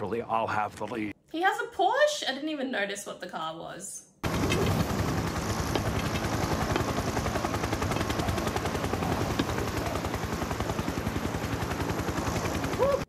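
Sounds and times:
helicopter rotor chop: 4.2s - 13.0s.

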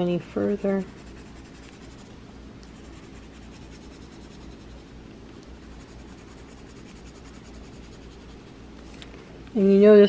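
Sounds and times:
pencil scratching on paper: 0.5s - 2.1s, 2.8s - 4.9s, 5.6s - 8.5s.

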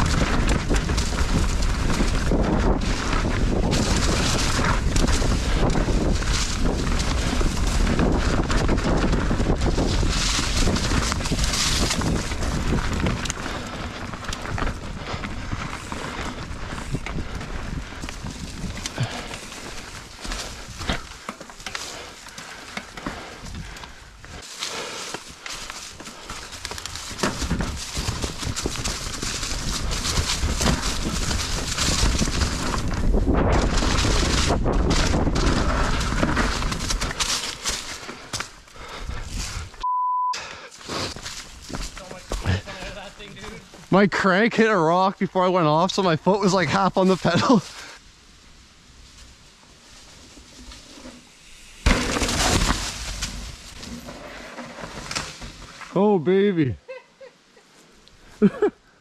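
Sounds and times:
wind rushing over microphone: 0.0s - 21.1s, 27.3s - 37.2s
bike rattling: 0.0s - 39.8s, 40.7s - 56.0s
tyres rolling over dirt: 0.0s - 39.8s, 40.7s - 48.0s, 48.8s - 56.2s.

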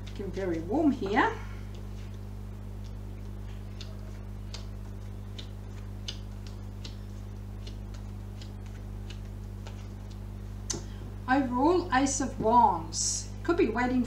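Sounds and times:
low hum: 0.0s - 14.0s.

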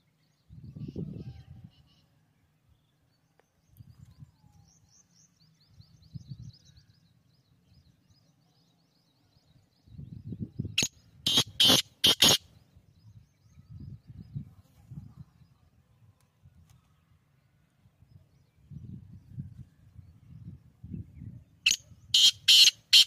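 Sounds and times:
francolin calling: 10.8s - 12.4s, 21.7s - 23.0s.

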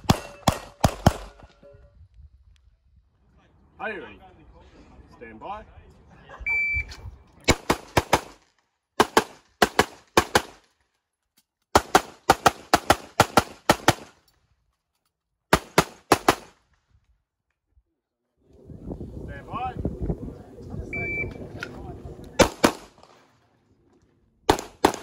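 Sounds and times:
rapid pistol shots: 0.0s - 1.4s, 7.5s - 8.4s, 9.0s - 10.6s, 11.8s - 14.2s, 15.5s - 16.6s, 22.4s - 23.1s, 24.5s - 25.0s
shot timer beep: 6.5s - 6.9s, 21.0s - 21.4s.

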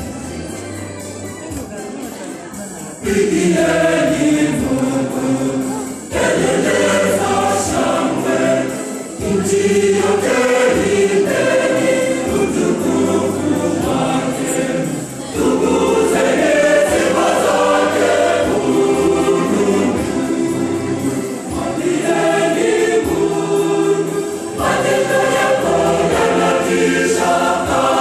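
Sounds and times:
choir singing gospel: 2.9s - 28.0s.

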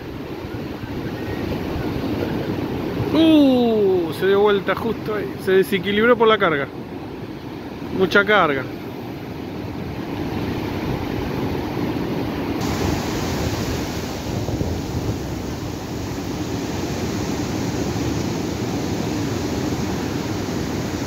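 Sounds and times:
wind on microphone: 9.4s - 21.0s
surf breaking on rocks: 9.9s - 21.0s.

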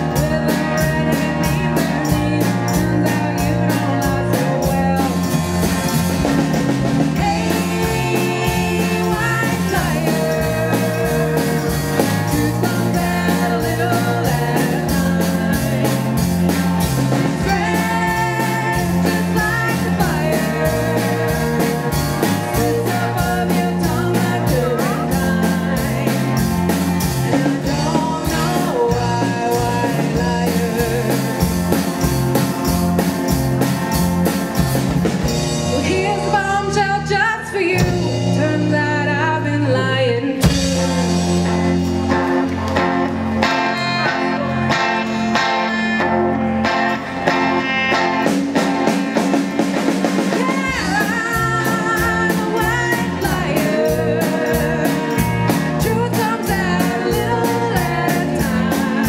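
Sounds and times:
voices singing: 0.0s - 5.8s, 6.5s - 32.0s, 50.1s - 59.0s
drum kit beat: 0.0s - 39.5s, 40.3s - 59.0s
bass guitar: 0.0s - 59.0s
electric guitar: 0.0s - 59.0s.

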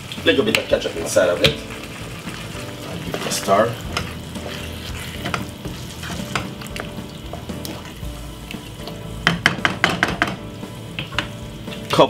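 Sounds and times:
sauce sizzling: 0.0s - 12.0s
wooden spoon stirring sauce: 1.3s - 10.4s
spoon knocking against pan: 8.9s - 11.4s.

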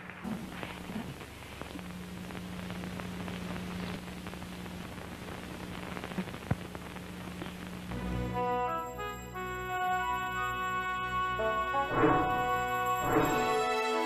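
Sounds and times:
static hiss with crackles: 0.0s - 14.0s
low even hum: 10.3s - 13.7s.

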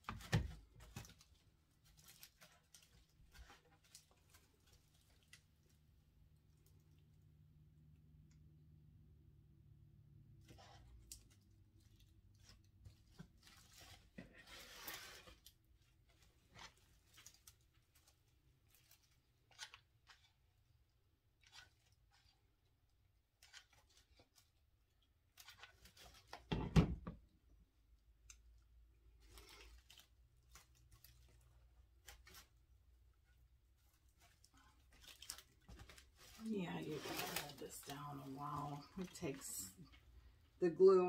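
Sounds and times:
dry vine crackling and rustling: 0.1s - 7.1s, 10.5s - 20.5s, 23.3s - 26.5s, 29.0s - 32.7s, 33.7s - 40.3s.

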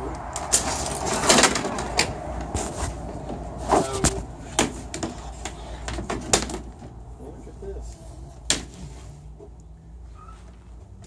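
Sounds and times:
window panels clicking and knocking: 0.4s - 7.0s.

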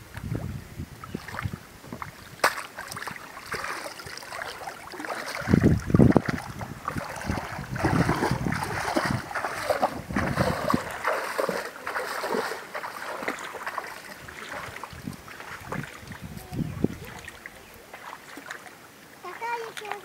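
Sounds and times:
bare feet splashing in water: 1.0s - 20.0s.

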